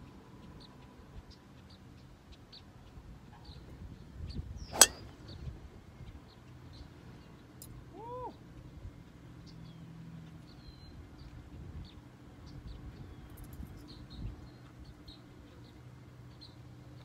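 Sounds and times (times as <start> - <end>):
small birds chirping: 0.0 - 17.0
golf club striking ball: 4.7 - 5.3.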